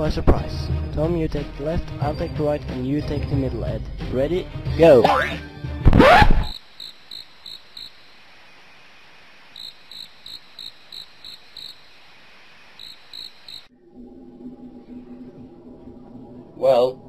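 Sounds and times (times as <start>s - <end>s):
crickets chirping: 6.5s - 13.7s.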